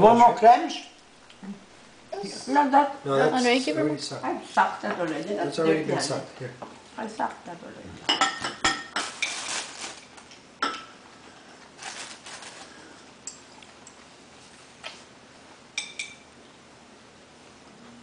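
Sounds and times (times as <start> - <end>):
cutlery clinking on plates: 8.1 - 9.4, 15.8 - 16.3.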